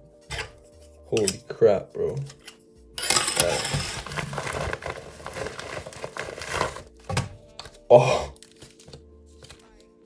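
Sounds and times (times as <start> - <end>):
plastic packaging crinkling: 3.8 - 7.2.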